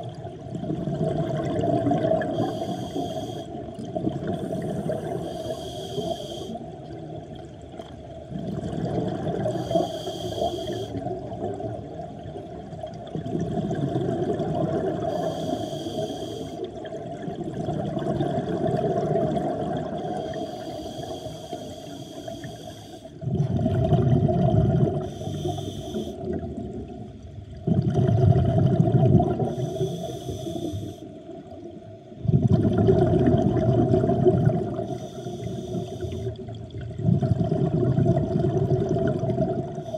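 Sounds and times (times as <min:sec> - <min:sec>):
exhaled bubbles rushing: 0:00.0 - 0:02.6, 0:03.7 - 0:05.2, 0:08.1 - 0:09.6, 0:11.0 - 0:15.1, 0:16.8 - 0:20.3, 0:23.2 - 0:25.2, 0:26.2 - 0:29.6, 0:32.1 - 0:35.0, 0:36.3 - 0:39.9
regulator inhale hiss: 0:02.2 - 0:03.6, 0:04.4 - 0:06.7, 0:09.5 - 0:11.0, 0:15.0 - 0:16.7, 0:20.1 - 0:23.2, 0:25.0 - 0:26.3, 0:29.5 - 0:31.2, 0:34.8 - 0:36.5.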